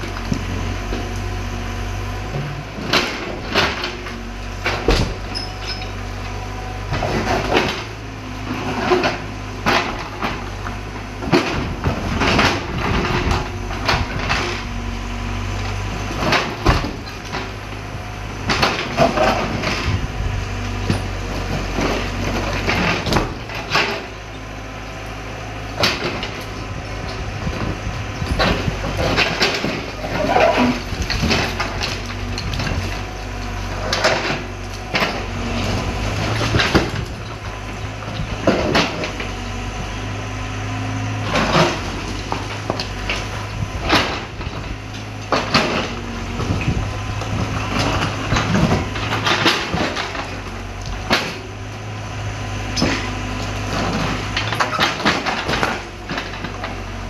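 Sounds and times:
diesel engine running: 0.0 - 57.0
concrete crashing and bricks falling: 27.5 - 39.3.

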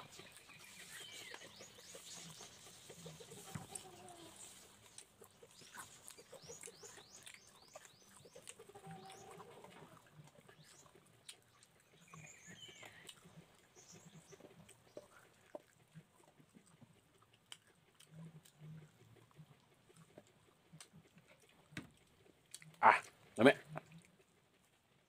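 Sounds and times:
birds chirping: 0.0 - 15.3
chewing and mouth smacking: 0.0 - 25.0.

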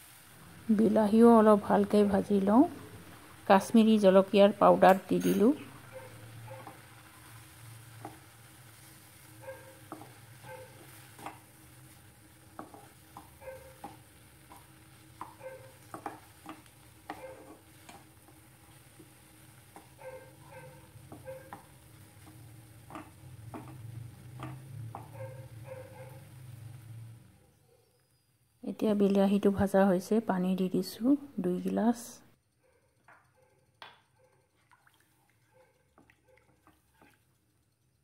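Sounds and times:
quiet sizzle: 0.0 - 38.0
spatula scraping and tapping pan: 6.6 - 26.6.

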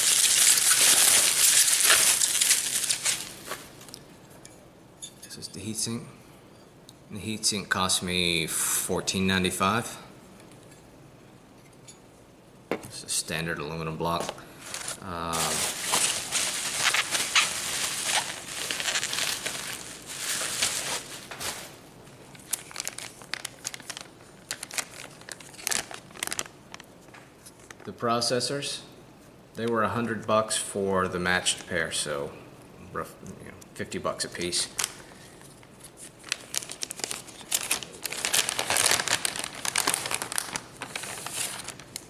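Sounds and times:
bubble wrap rustling: 0.0 - 4.0, 14.6 - 27.9, 34.3 - 42.0
plastic bag crinkling: 0.0 - 4.0, 14.6 - 26.9, 34.4 - 42.0.

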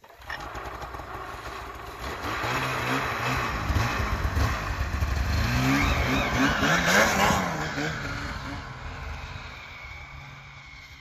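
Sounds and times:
snowmobile engine revving: 0.2 - 11.0.

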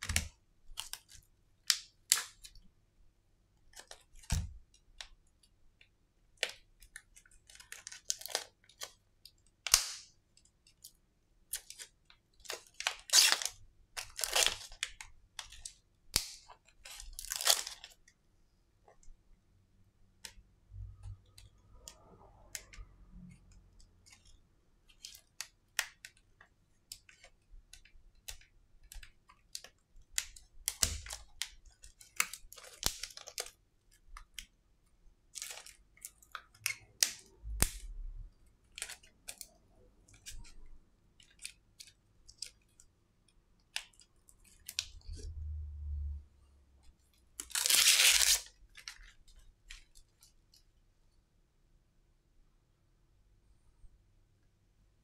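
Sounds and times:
crackling tearing rustles: 11.5 - 15.0, 47.4 - 49.2.

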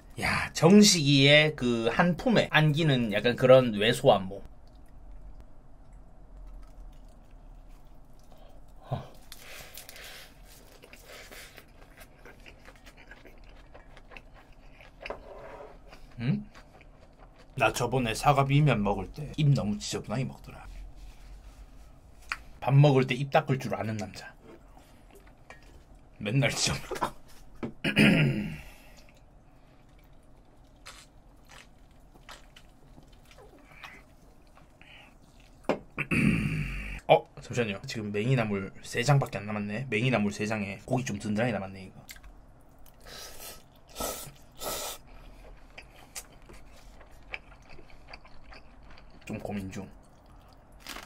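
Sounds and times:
chewing noodles: 4.6 - 17.9, 29.0 - 35.7, 42.1 - 51.0.

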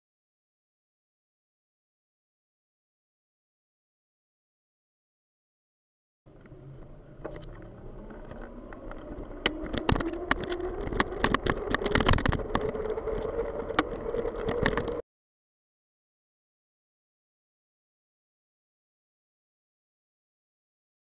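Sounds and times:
wind buffeting microphone: 6.4 - 15.0.

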